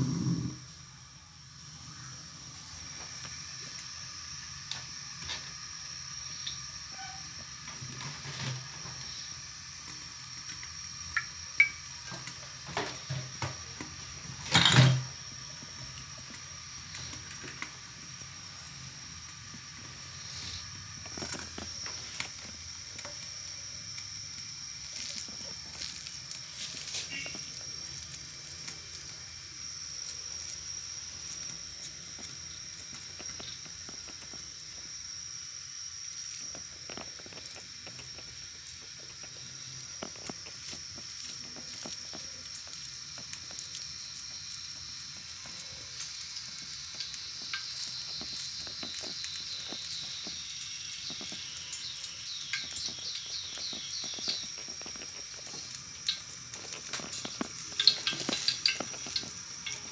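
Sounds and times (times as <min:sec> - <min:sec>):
steady high hiss: 0:00.0 - 0:59.9.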